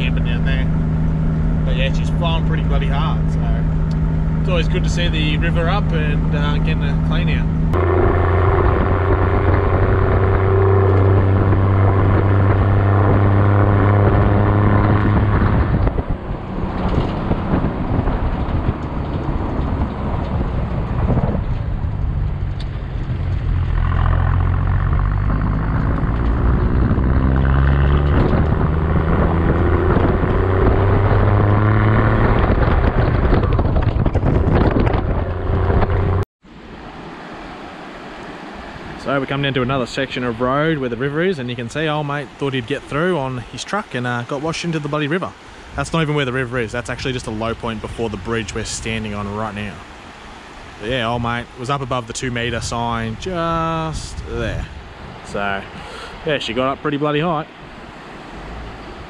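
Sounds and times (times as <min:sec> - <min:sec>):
car engine drone: 0:00.0 - 0:37.6
tyre and road noise: 0:00.0 - 0:59.0.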